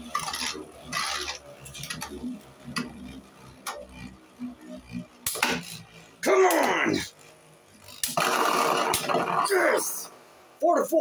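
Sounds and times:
spinning tops clicking: 0.0s - 10.1s.

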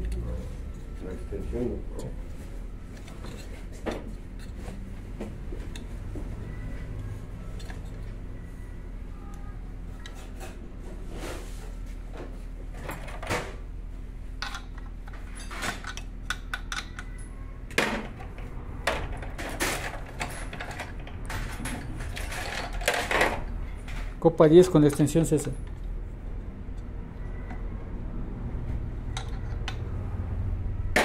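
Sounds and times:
tools and parts knocking and rattling: 3.0s - 6.2s, 12.2s - 13.6s, 14.4s - 26.0s, 29.1s - 30.0s.

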